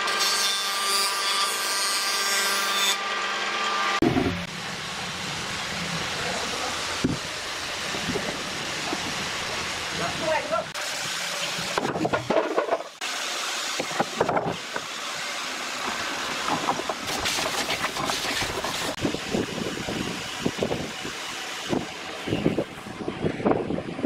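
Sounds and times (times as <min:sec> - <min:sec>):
wooden boards knocking and clattering: 0:04.0 - 0:04.5, 0:11.7 - 0:13.0, 0:13.8 - 0:14.9, 0:16.4 - 0:19.0.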